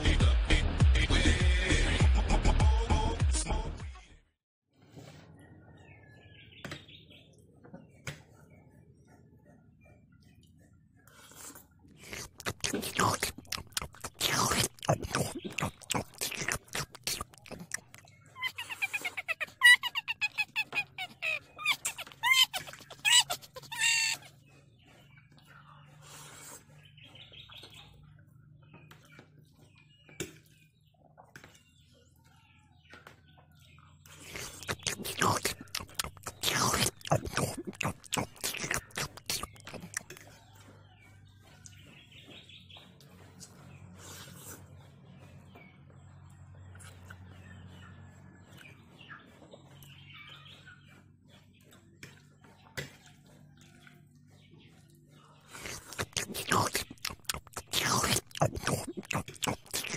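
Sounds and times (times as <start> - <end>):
small birds chirping: 4.8 - 59.9
slurping and chewing: 11.0 - 27.7, 34.1 - 45.3, 48.4 - 59.9.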